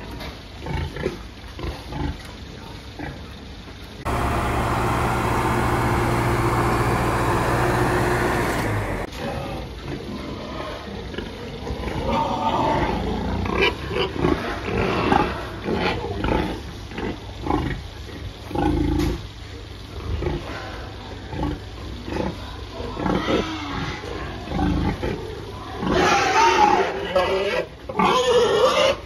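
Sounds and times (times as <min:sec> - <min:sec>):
heavy machine engine running: 0:04.0 - 0:09.1
pigs grunting and squealing: 0:08.2 - 0:17.8, 0:21.5 - 0:29.0.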